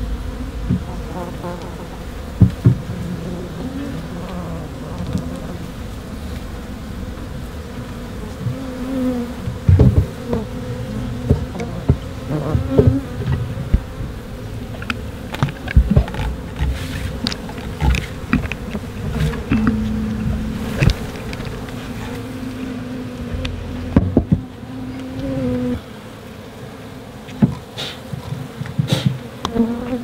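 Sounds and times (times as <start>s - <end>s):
bees buzzing: 0.0s - 30.0s
knocks on wooden frame: 23.3s - 24.5s.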